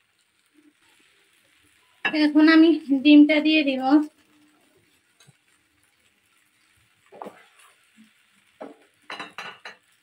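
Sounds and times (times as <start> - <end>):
metal spatula scraping plate and pan: 6.6 - 9.9.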